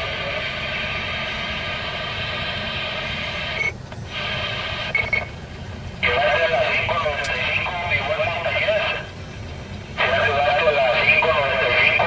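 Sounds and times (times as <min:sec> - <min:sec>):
radio static hiss: 0:00.0 - 0:05.3, 0:06.0 - 0:09.1, 0:10.0 - 0:12.0
short high beep: 0:04.9 - 0:05.3.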